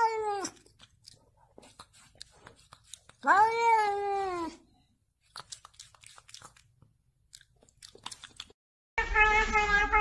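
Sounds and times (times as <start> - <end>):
cat meowing: 9.0 - 10.0.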